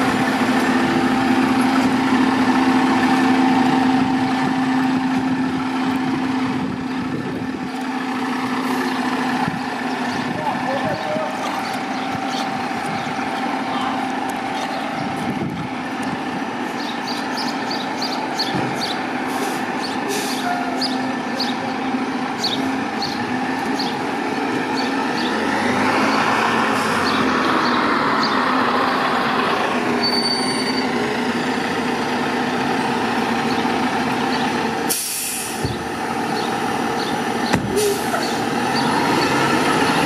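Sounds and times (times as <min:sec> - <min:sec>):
fire engine diesel engine running: 0:00.0 - 0:40.0
air brakes hissing: 0:19.3 - 0:20.8, 0:34.9 - 0:35.8, 0:37.6 - 0:38.4.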